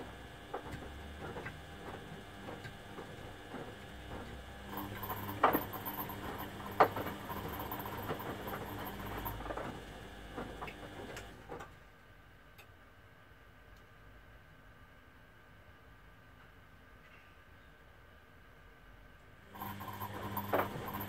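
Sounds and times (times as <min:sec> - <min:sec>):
washing machine water sloshing: 0:00.7 - 0:11.3.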